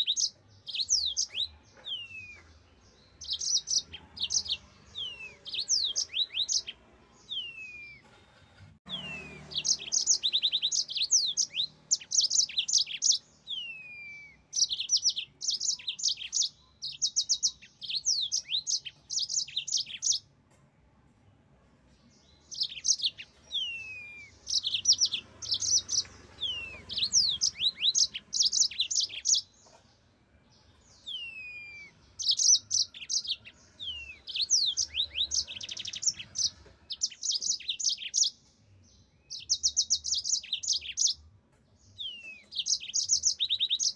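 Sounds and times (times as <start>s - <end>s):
canary singing: 0.0s - 8.2s, 8.8s - 20.4s, 22.0s - 43.9s.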